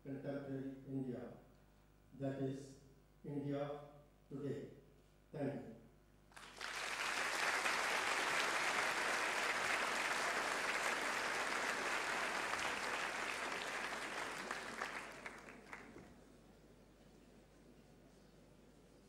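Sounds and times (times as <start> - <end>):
audience applauding: 6.3 - 16.1.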